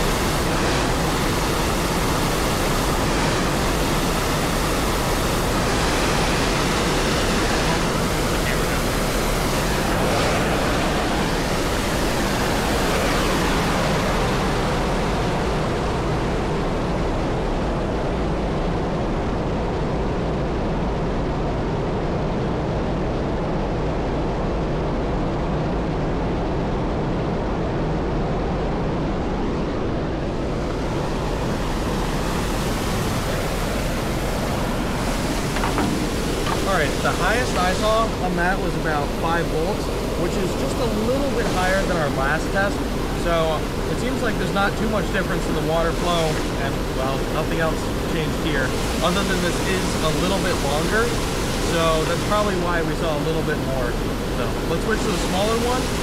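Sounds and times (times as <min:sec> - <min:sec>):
waterfall rushing: 0:30.4 - 0:56.0.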